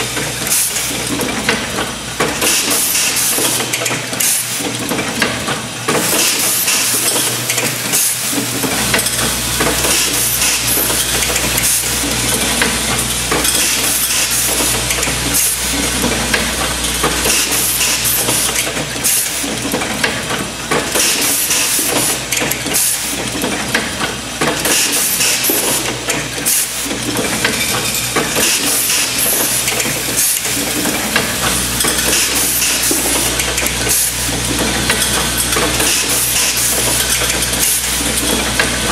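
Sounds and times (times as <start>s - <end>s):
pneumatic air hissing: 9.6s - 12.1s, 17.2s - 19.5s, 21.0s - 22.2s, 24.6s - 26.9s, 28.4s - 30.6s.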